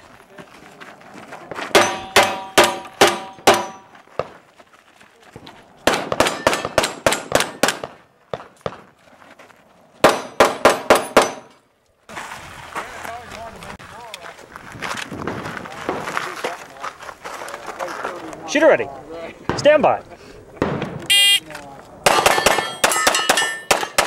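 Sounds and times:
steel targets ringing when hit: 22.2s - 24.0s.

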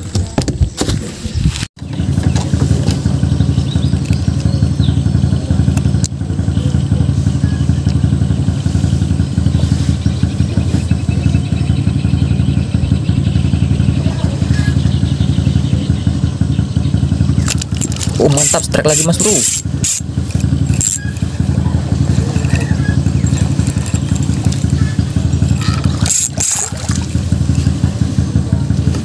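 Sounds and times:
boat engine droning: 1.8s - 29.0s.

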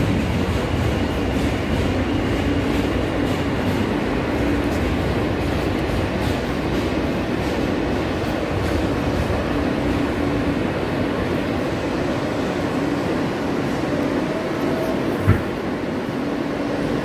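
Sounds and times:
subway wheels rumbling on rail: 0.0s - 17.0s.

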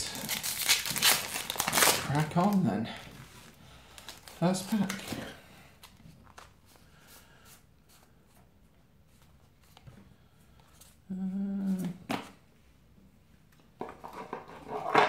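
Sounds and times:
man humming: 11.1s - 12.1s.

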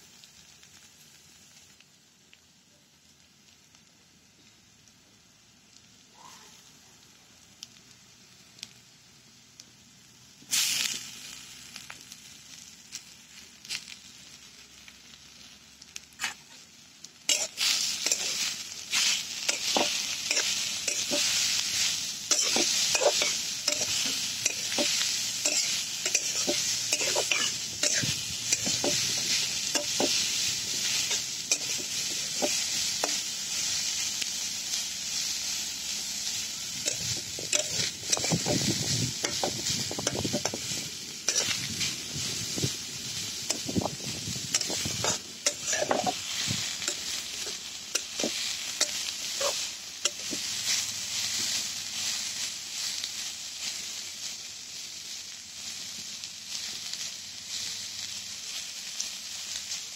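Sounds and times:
vegetables sizzling in oil: 0.0s - 59.9s
metal spoon scraping pan: 17.3s - 21.4s, 22.3s - 33.2s, 36.8s - 40.7s, 41.3s - 41.6s, 44.5s - 46.2s.

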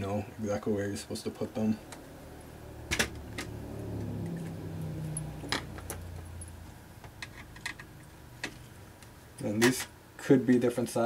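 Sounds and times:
low hum: 1.9s - 9.4s.

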